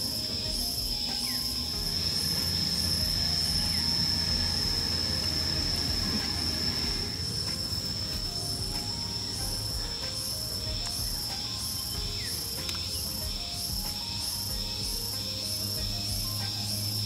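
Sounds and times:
faint pulsing chirp: 0.0 - 17.0
insects droning: 0.0 - 17.0
low rumble: 1.6 - 11.3.

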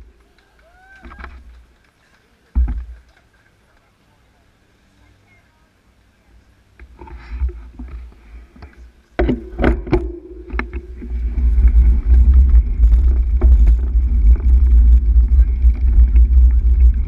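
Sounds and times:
wind and road rumble on microphone: 6.8 - 17.0.

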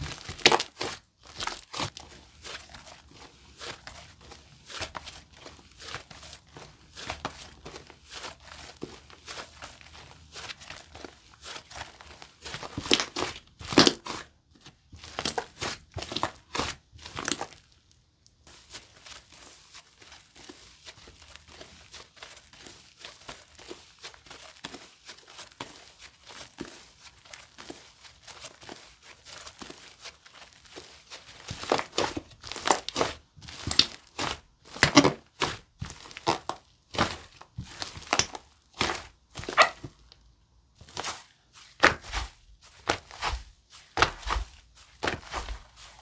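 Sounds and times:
slime crackling and popping: 0.0 - 5.2, 11.5 - 14.3, 28.5 - 40.2.

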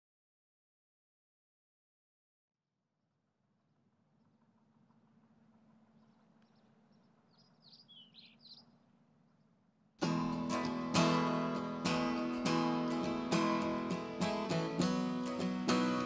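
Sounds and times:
faint bird chirps: 5.8 - 9.6
acoustic guitar strumming: 10.0 - 16.0.

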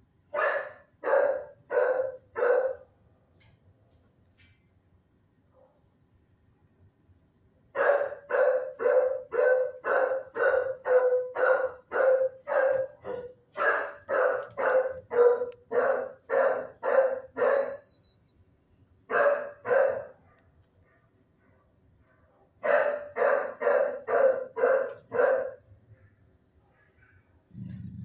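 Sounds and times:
dog barking: 0.3 - 2.9, 7.8 - 17.9, 19.1 - 27.8.

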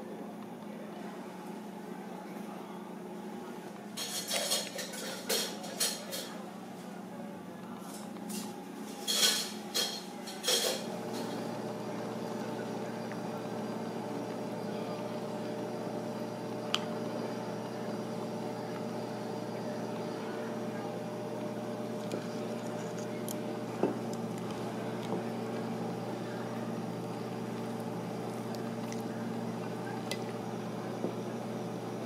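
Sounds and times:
steady background hum: 0.0 - 32.0
dishes and cutlery clinking: 4.0 - 6.4, 7.9 - 11.3.

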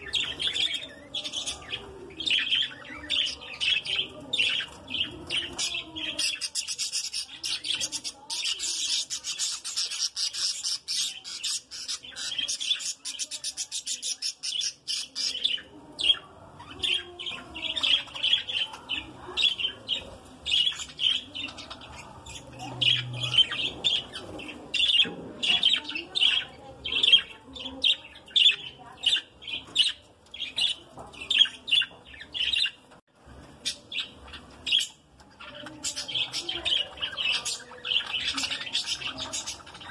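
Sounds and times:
budgerigars chirping: 33.7 - 39.9.

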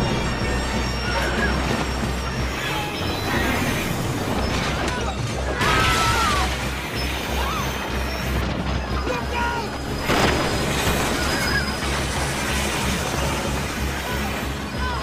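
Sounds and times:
rumbling and smashing debris: 0.0 - 14.7
film music score: 0.0 - 15.0.

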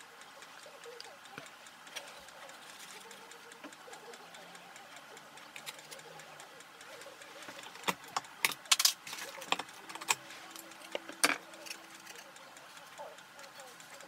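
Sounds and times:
faint steady background: 0.0 - 14.0
tools clicking on desk: 7.0 - 14.0.

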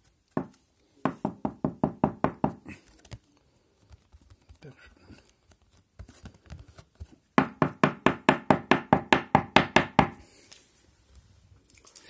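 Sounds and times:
sharp knocks on hard surface: 1.1 - 2.6, 7.4 - 10.2.

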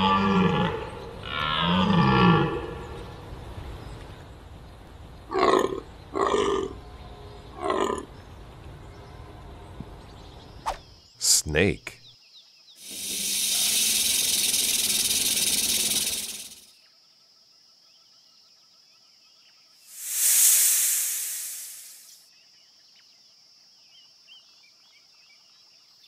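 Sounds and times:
rattlesnake rattle buzzing: 12.8 - 16.7, 19.9 - 22.2
snake hissing: 12.8 - 16.7, 19.9 - 22.2.

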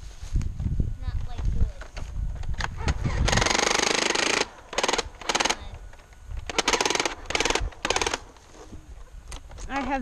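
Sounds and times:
toy blaster rattling bursts: 3.0 - 5.8, 6.4 - 8.3.

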